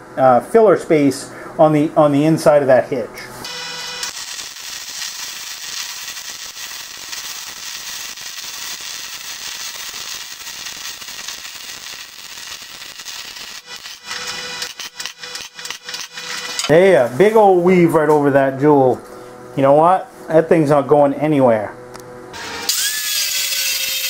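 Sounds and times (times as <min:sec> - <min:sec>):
welding arc crackling: 0:03.4 - 0:17.1, 0:22.4 - 0:24.0.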